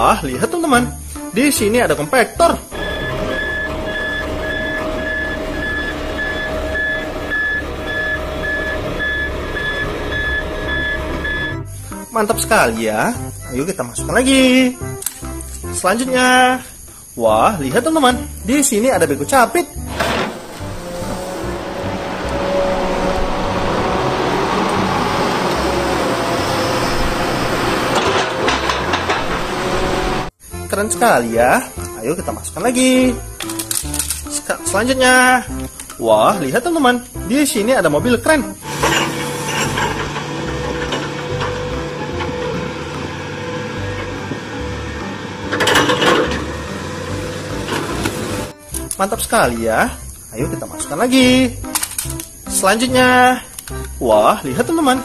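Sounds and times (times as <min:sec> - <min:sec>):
diesel engine rumble: 0:01.0 - 0:14.4, 0:18.9 - 0:30.4, 0:38.0 - 0:49.0
backup alarm beeping: 0:02.7 - 0:11.8.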